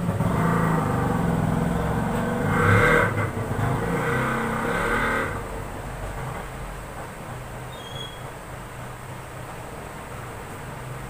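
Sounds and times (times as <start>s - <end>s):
vehicle engine passing by: 0.0s - 6.7s.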